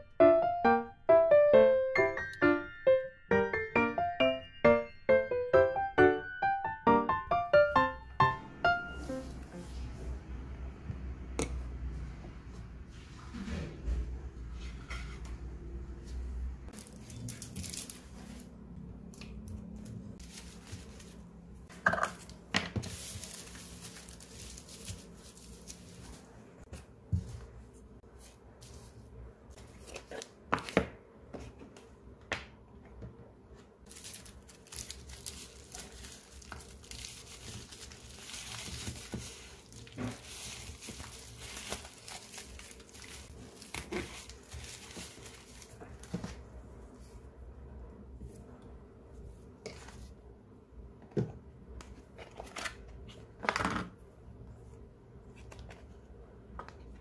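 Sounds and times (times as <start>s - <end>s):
bubble wrap crinkling: 16.7s - 18.6s, 19.9s - 21.3s, 22.2s - 26.4s, 33.8s - 46.4s.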